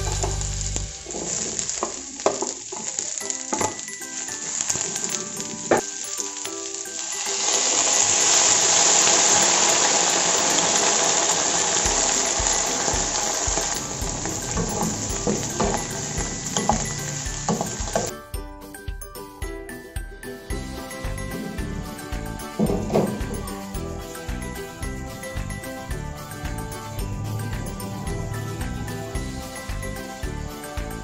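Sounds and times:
vegetables sizzling in a frying pan: 0:00.0 - 0:18.1
faint background music with beat: 0:11.8 - 0:31.0.

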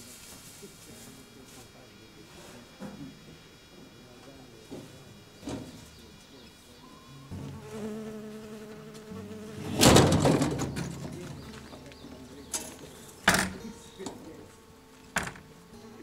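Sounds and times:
honeybees buzzing: 0:00.0 - 0:16.0.

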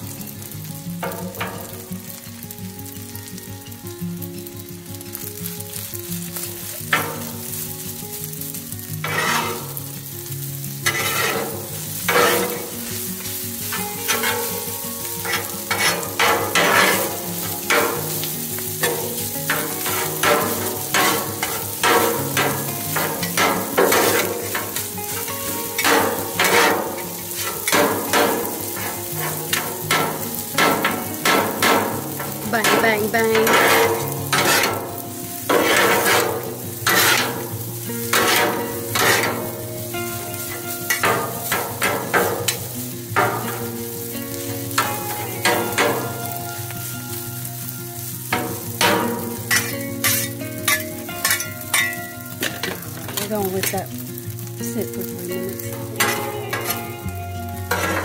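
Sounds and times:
rice sizzling on a griddle: 0:00.0 - 0:58.0
metal spatulas scraping griddle: 0:06.9 - 0:07.4, 0:09.0 - 0:09.8, 0:10.8 - 0:39.6, 0:40.4 - 0:43.8, 0:48.3 - 0:53.7, 0:56.0 - 0:57.0, 0:57.7 - 0:58.0.

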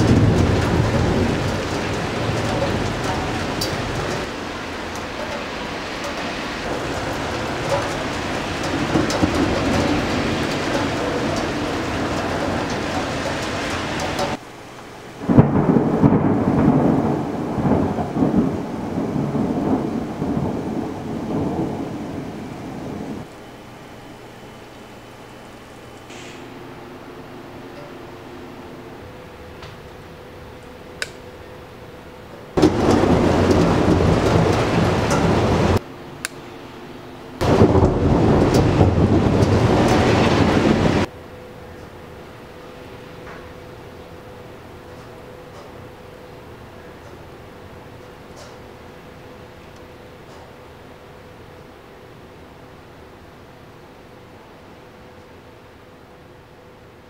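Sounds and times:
thunder rumbling: 0:00.0 - 0:14.4, 0:15.2 - 0:23.4, 0:26.4 - 0:35.9, 0:37.4 - 0:49.2
rain falling: 0:00.0 - 0:31.8, 0:32.5 - 0:36.1, 0:36.7 - 0:56.5
steady noise: 0:00.0 - 0:54.9
faint hiss: 0:24.1 - 0:29.0.

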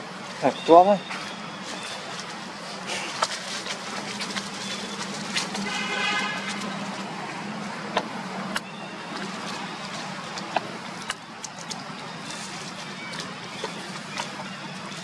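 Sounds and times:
dry leaves crackling: 0:00.0 - 0:15.0
monkeys scampering: 0:00.0 - 0:15.0.

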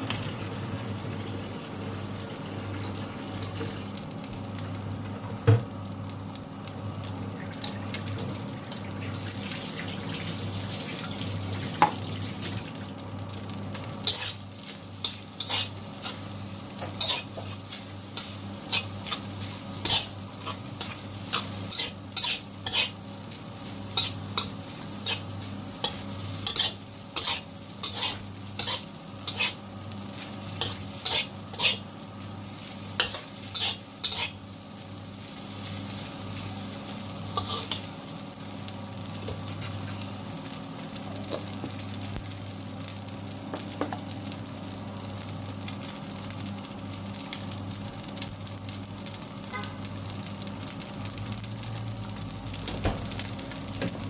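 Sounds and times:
food sizzling in a wok: 0:00.0 - 0:54.0
metal spatula scraping a wok: 0:15.4 - 0:16.2, 0:17.0 - 0:17.6, 0:18.7 - 0:23.0, 0:23.9 - 0:29.6, 0:30.6 - 0:31.9, 0:33.0 - 0:34.4, 0:37.4 - 0:37.8.

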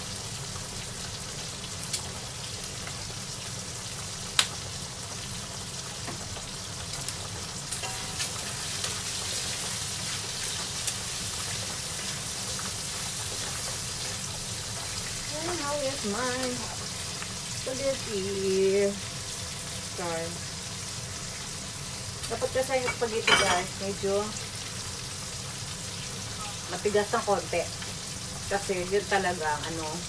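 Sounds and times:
bacon sizzling in a wok: 0:00.0 - 0:30.0.

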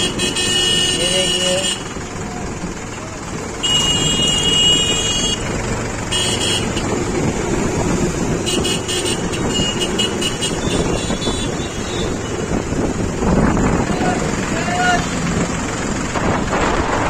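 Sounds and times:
vehicle horn beeping: 0:00.0 - 0:01.9, 0:03.6 - 0:05.5, 0:06.1 - 0:07.0, 0:08.4 - 0:12.4
tractor diesel engine running: 0:00.0 - 0:17.0.

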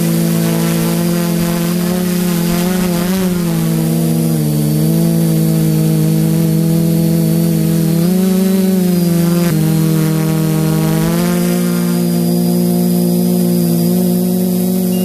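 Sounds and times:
quadcopter motors humming: 0:00.0 - 0:15.0.

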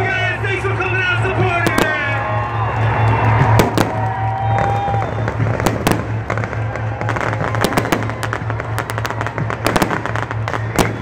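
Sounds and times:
electronic dance music: 0:00.0 - 0:02.6
fireworks bangs and crackles: 0:00.0 - 0:11.0.

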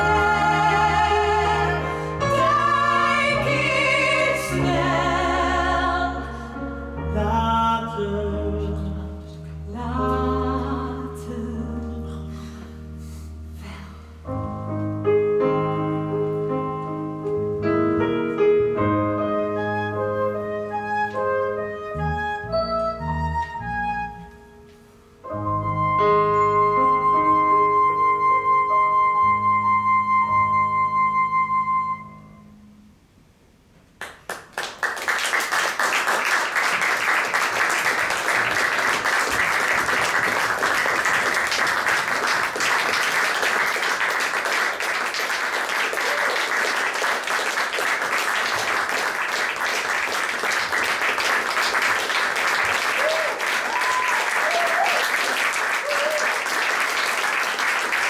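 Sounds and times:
audience applause: 0:34.0 - 0:58.0.

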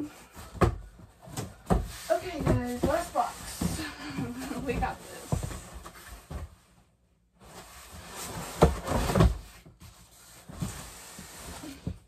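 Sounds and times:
cardboard box scraping and thumping: 0:01.4 - 0:06.6, 0:07.5 - 0:12.0.

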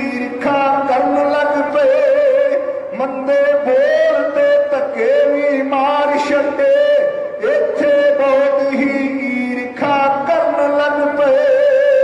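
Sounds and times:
man singing a ballad: 0:00.0 - 0:12.0.

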